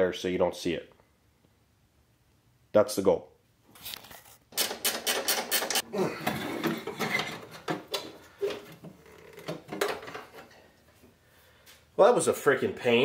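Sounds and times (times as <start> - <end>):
hand tools knocking and rattling: 4.5 - 10.6.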